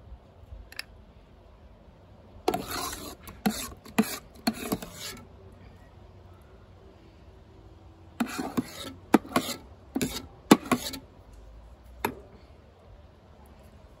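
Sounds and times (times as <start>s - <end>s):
metal spoon scraping bowl: 2.5s - 5.3s, 8.2s - 11.1s.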